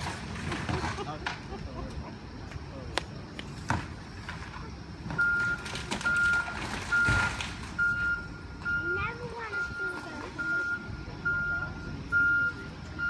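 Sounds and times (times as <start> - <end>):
backhoe engine running: 0.0 - 13.0
backup alarm beeping: 5.1 - 13.0.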